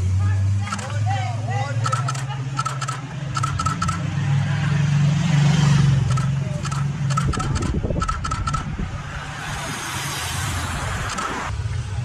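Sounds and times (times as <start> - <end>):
bicycles hissing on wet road: 9.2 - 11.6.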